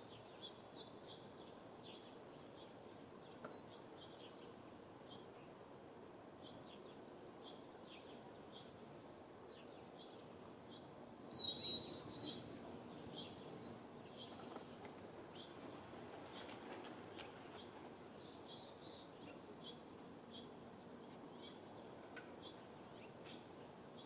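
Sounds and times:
small songbirds chirping: 0.0 - 5.6, 9.5 - 15.7, 17.5 - 24.0.

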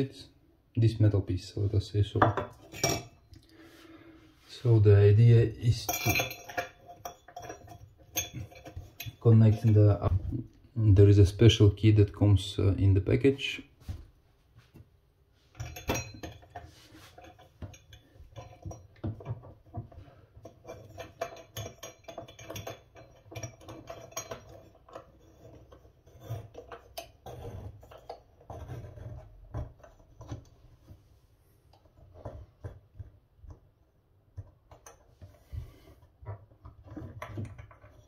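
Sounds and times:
metal drain strainer scraping: 5.8 - 10.2.

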